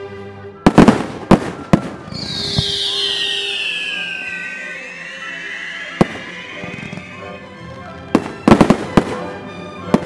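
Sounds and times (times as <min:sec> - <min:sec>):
background music: 0:00.0 - 0:10.0
fireworks bursting: 0:00.7 - 0:07.4, 0:08.1 - 0:09.2.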